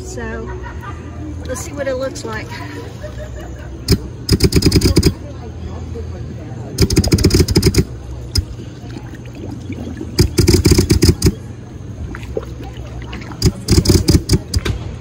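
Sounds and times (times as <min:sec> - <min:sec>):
electric compressor humming: 0:03.8 - 0:05.3, 0:06.8 - 0:14.7
bubbling underwater exhales: 0:08.5 - 0:10.2.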